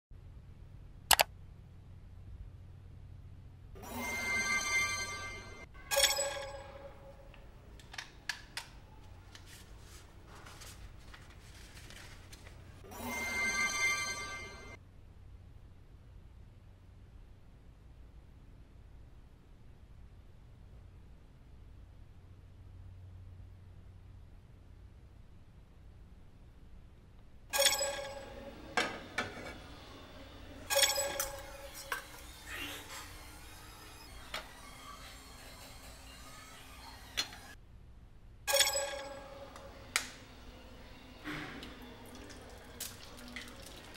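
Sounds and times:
short ringing chime: 3.8s - 7.2s, 12.9s - 14.8s, 27.5s - 29.2s, 30.1s - 35.1s, 38.5s - 39.8s
paper crackling and rustling: 9.2s - 12.8s.

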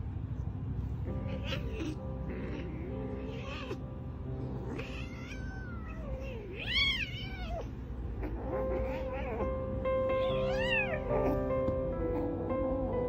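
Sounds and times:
kitten mewing: 1.2s - 3.9s, 4.5s - 11.6s.

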